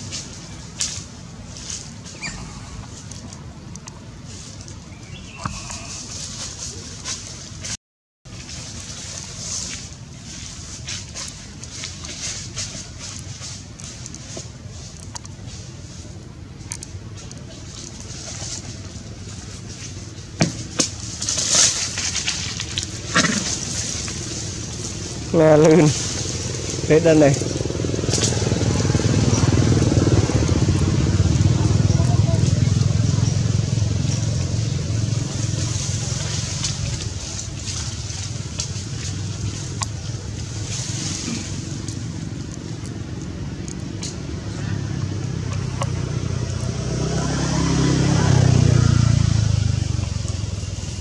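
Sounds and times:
dry leaves crackling and rustling: 0.0s - 51.0s
low background rumble: 8.3s - 51.0s.

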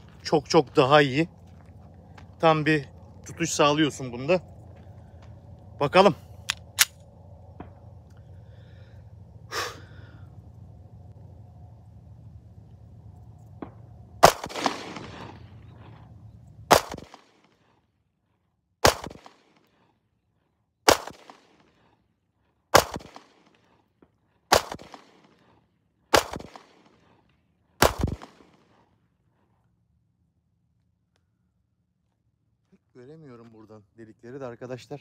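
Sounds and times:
pistol shots: 14.2s - 15.4s, 16.7s - 17.5s, 18.8s - 19.7s, 20.9s - 21.7s, 22.7s - 23.6s, 24.5s - 25.4s, 26.1s - 27.0s, 27.8s - 28.7s.

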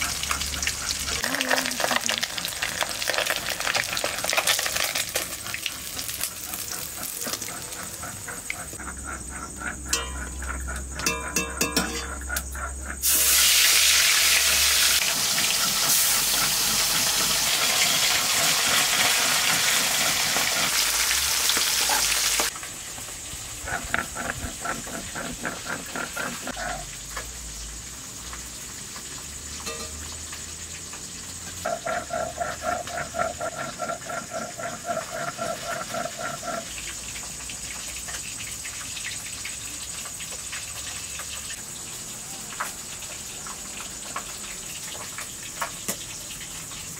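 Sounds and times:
food sizzling in hot oil: 0.0s - 8.8s, 9.9s - 46.9s
rhythmic pulsing chirp: 8.8s - 12.8s.

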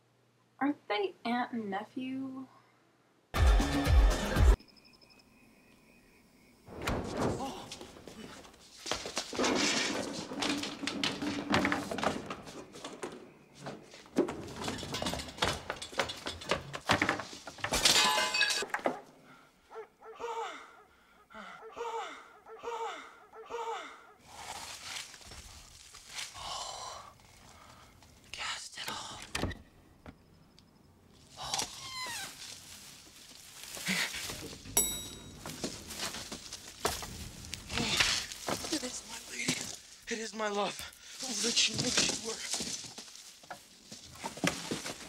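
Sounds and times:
things breaking: 6.7s - 13.2s, 14.1s - 18.9s
thuds and clattering: 6.7s - 19.0s.

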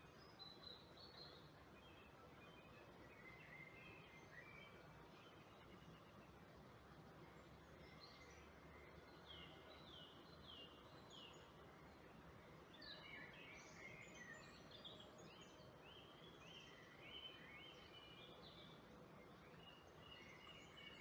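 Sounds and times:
low steady hiss: 0.0s - 21.0s
faint birdsong: 7.3s - 21.0s.

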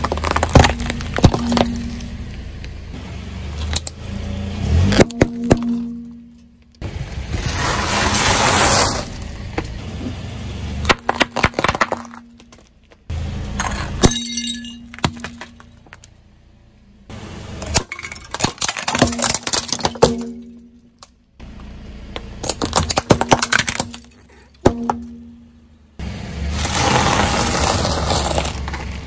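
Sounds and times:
tyre crushing brittle objects: 0.0s - 2.4s, 10.8s - 13.0s, 17.6s - 21.1s, 22.3s - 25.2s, 26.5s - 29.0s
clinking shards: 13.6s - 16.2s, 17.6s - 21.1s.

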